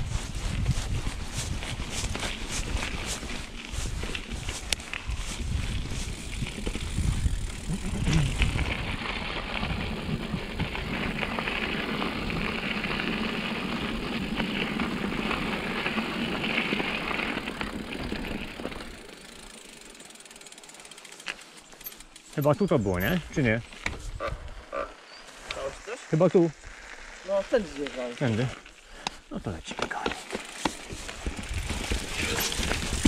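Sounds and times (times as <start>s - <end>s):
rushing wind: 0.0s - 18.2s, 30.9s - 33.0s
rolling movement noise: 0.5s - 24.2s, 29.7s - 33.0s.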